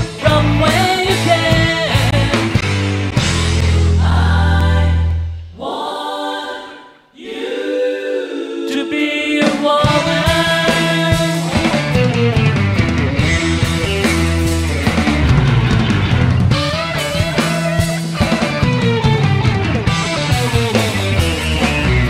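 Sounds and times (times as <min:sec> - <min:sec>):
rock band playing live: 0:00.0 - 0:04.0, 0:09.8 - 0:22.0.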